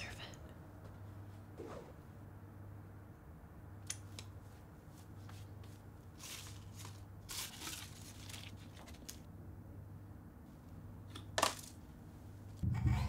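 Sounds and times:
low steady hum: 0.0s - 13.0s
paper and foil wrappers crinkling: 6.2s - 9.3s.

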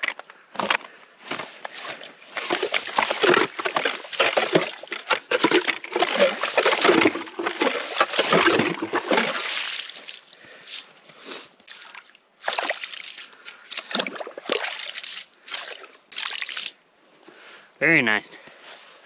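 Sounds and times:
ice auger sloshing through slush: 0.6s - 10.3s, 12.4s - 16.8s.

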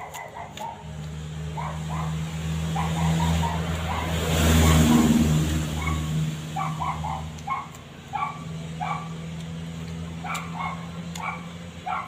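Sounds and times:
dog barking: 0.0s - 0.9s, 1.5s - 5.0s, 5.8s - 9.2s, 10.2s - 12.0s.

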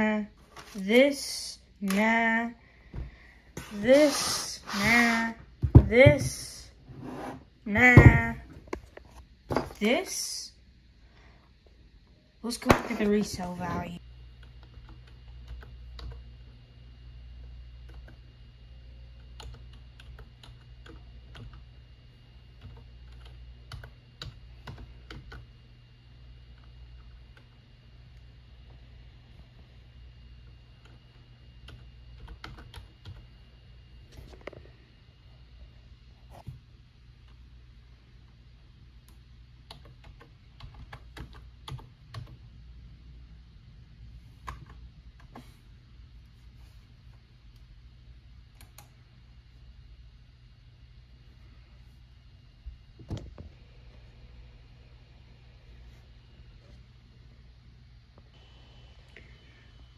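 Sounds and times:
low steady hum: 0.0s - 59.9s
typing on keyboard: 19.2s - 21.7s, 22.6s - 25.5s, 31.6s - 33.2s, 39.6s - 42.4s.

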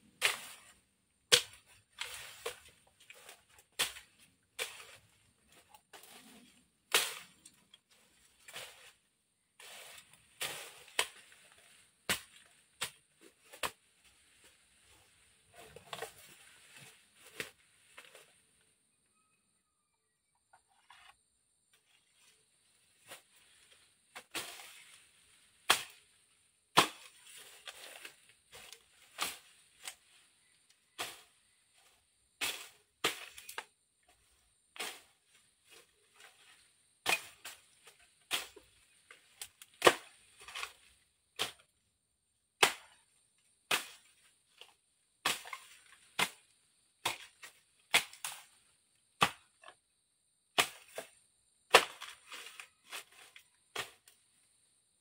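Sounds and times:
machete chopping through brush: 0.2s - 7.6s, 9.6s - 13.9s, 24.1s - 33.7s, 34.8s - 41.6s, 42.6s - 43.0s, 43.7s - 48.5s, 49.2s - 49.7s, 50.6s - 54.1s.

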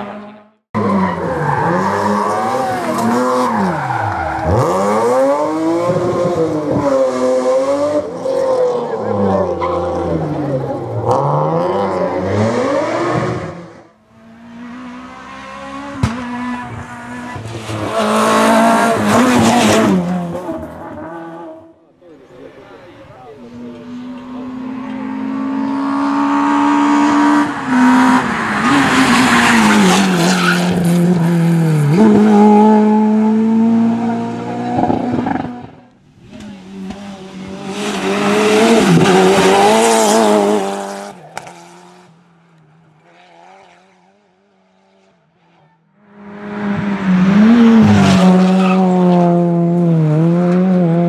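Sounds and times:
rally car engines revving: 0.0s - 51.0s.

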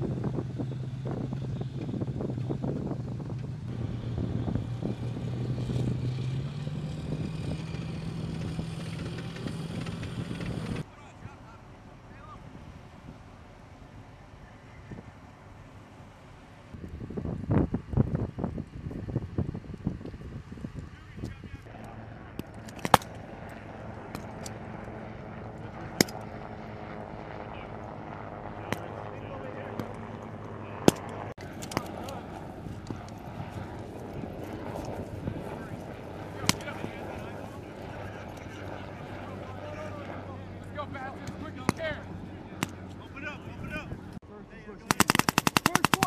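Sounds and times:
diesel engine running: 0.0s - 10.8s
rifle shot: 44.9s - 46.0s.

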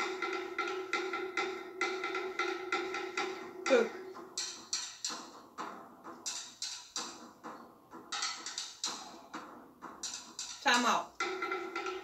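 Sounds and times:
wooden drum strikes: 0.0s - 12.0s.

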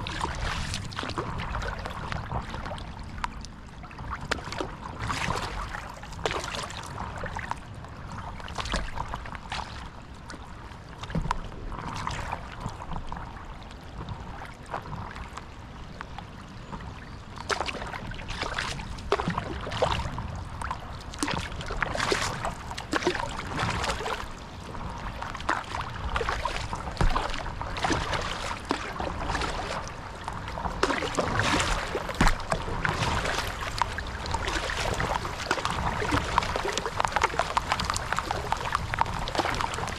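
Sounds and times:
paddle splashing through water: 0.0s - 39.9s
steady low rumble: 18.9s - 39.9s.

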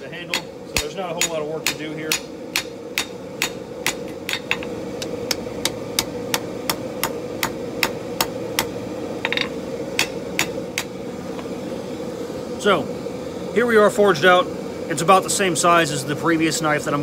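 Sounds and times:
hammer striking metal on anvil: 0.2s - 10.9s.

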